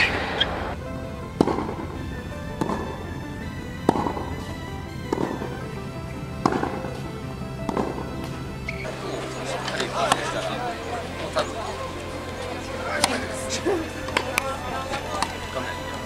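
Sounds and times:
music: 0.0s - 16.0s
tennis racket hitting ball: 3.8s - 4.5s, 6.4s - 7.1s, 7.7s - 9.0s.

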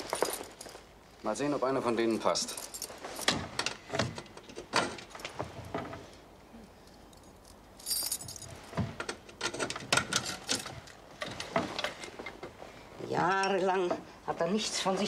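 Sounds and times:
keys jangling: 6.8s - 8.7s
key rattling in lock: 6.9s - 8.5s, 9.1s - 11.0s.

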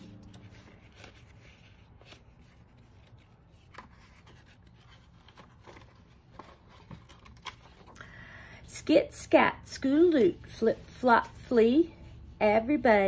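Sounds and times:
paper rustling: 0.0s - 8.0s.

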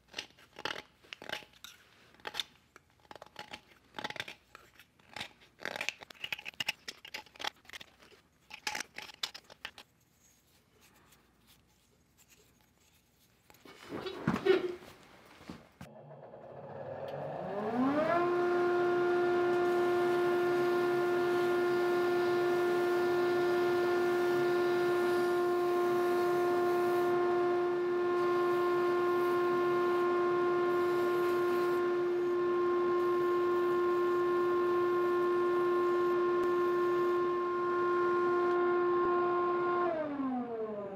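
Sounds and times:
belt grinder whining: 15.9s - 40.9s.

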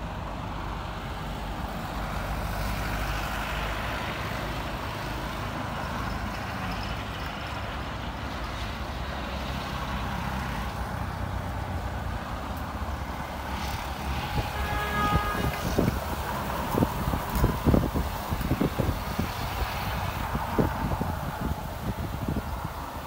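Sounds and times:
jet engines low rumbling: 7.5s - 23.0s.

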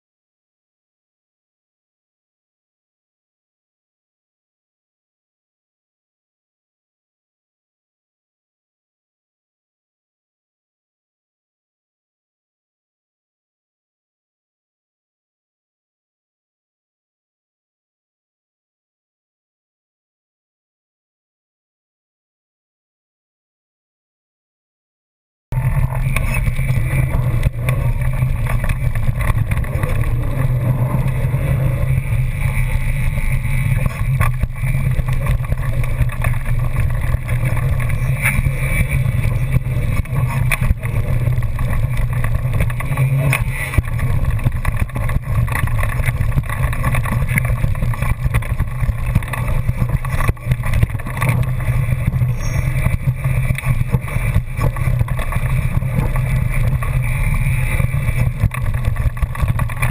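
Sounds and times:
bike rattling and knocking: 25.5s - 59.9s
tyres on dirt: 25.5s - 59.9s
wind rumble on microphone: 25.5s - 59.9s.

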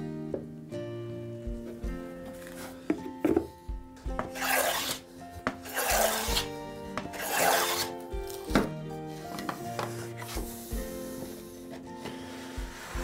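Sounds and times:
background music: 0.0s - 13.0s
hand plane rasping on wood: 4.2s - 7.9s, 9.4s - 13.0s.

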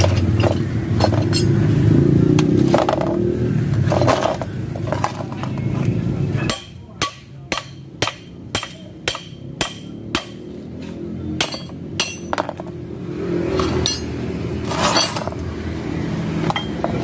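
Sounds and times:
metal parts clinking: 0.0s - 1.7s, 11.4s - 12.7s, 13.6s - 15.4s
hammer striking steel: 6.4s - 10.5s, 11.4s - 12.6s, 13.6s - 14.2s.

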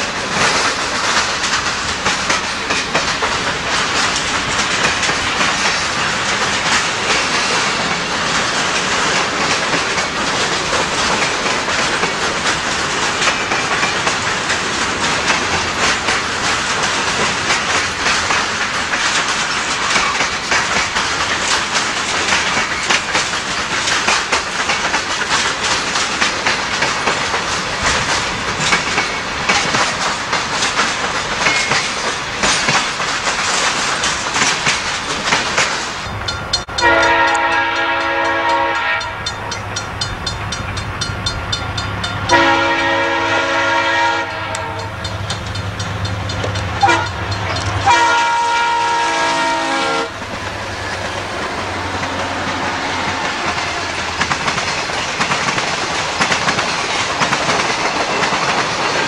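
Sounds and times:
diesel locomotive drone: 0.0s - 59.0s
train wheels clicking over rail joints: 0.0s - 59.0s
train air horn blasts: 36.7s - 39.3s, 42.3s - 45.0s, 46.8s - 47.2s, 47.8s - 50.2s.

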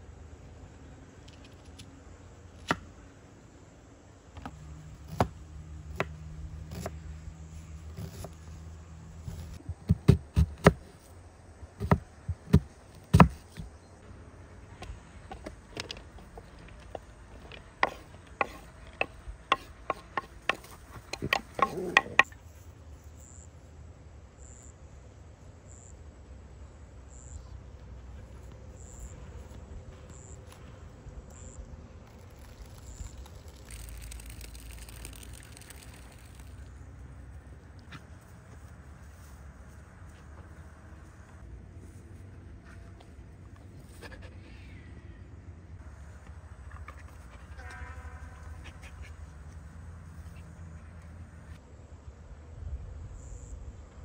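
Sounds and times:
knife chopping on wooden board: 11.8s - 13.7s, 17.8s - 22.3s.

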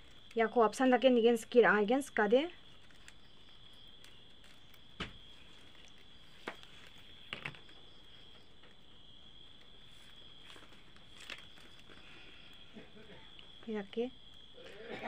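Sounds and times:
high insect trill: 0.0s - 15.0s
plastic strips clicking and rustling: 2.7s - 7.7s, 10.4s - 12.1s.

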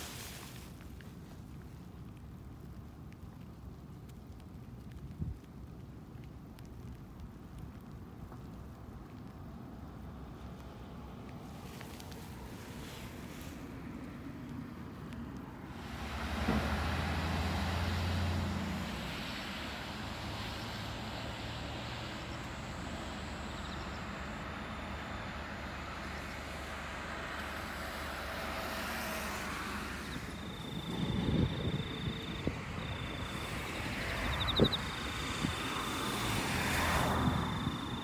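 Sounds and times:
road rumble: 0.0s - 38.0s
vehicle passing: 15.7s - 38.0s.

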